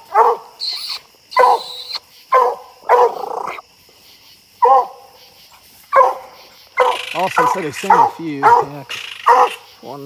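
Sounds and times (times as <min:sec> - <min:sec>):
hound barking: 0:00.0 - 0:03.6, 0:04.6 - 0:05.1, 0:05.9 - 0:09.7.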